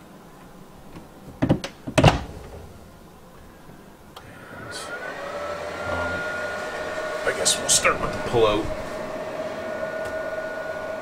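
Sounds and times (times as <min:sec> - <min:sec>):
faint rising whine: 0:02.6 - 0:11.0.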